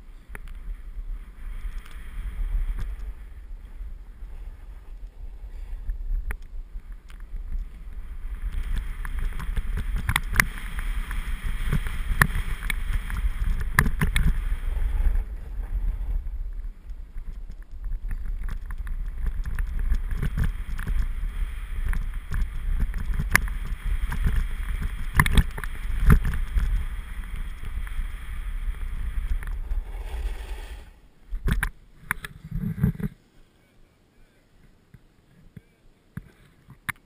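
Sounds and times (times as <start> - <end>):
skis scraping on snow: 0.0 - 31.5
wind rumbling on microphone: 0.0 - 33.2
small clicks: 1.6 - 2.0, 16.8 - 21.1, 21.8 - 28.0.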